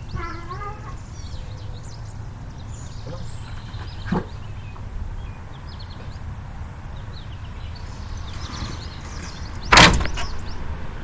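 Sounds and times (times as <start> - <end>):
birds chirping: 0.0 - 11.0
loud thump: 9.7 - 10.3.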